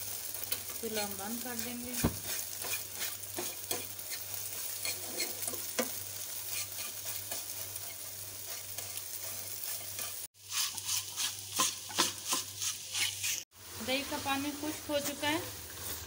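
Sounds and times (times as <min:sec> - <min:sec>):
eggs sizzling in a frying pan: 0:00.0 - 0:16.0
fork scraping and tapping a pan: 0:02.3 - 0:13.4.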